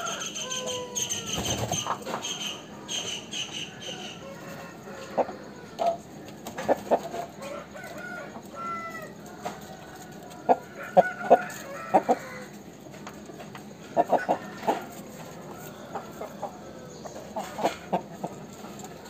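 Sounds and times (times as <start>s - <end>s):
rooster high calls: 0.0s - 6.2s, 7.3s - 9.5s, 10.2s - 12.6s
rooster clucking: 0.0s - 12.6s, 13.3s - 19.0s.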